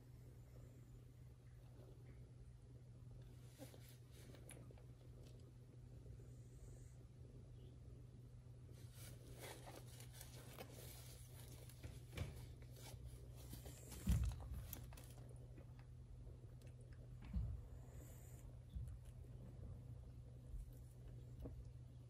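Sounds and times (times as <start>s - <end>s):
steady low hum: 0.0s - 22.0s
diaper crinkling and rustling: 8.8s - 15.8s.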